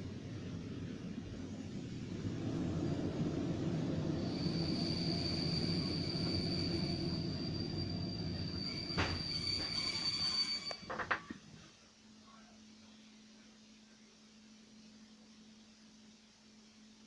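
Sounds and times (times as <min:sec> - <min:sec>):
train running gear rumble: 0:00.0 - 0:11.4
wheels squealing under braking: 0:03.9 - 0:11.0
sharp knocks of train halting: 0:08.7 - 0:10.0.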